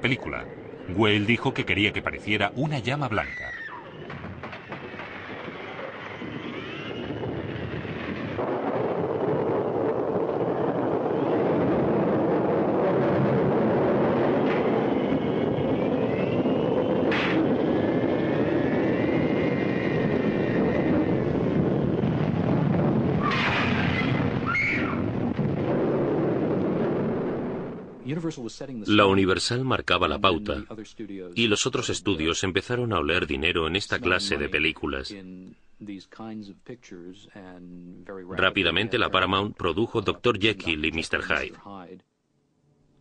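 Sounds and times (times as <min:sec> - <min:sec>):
storm wind rushing: 0:00.0 - 0:28.1
faint whistling tones: 0:14.8 - 0:17.1.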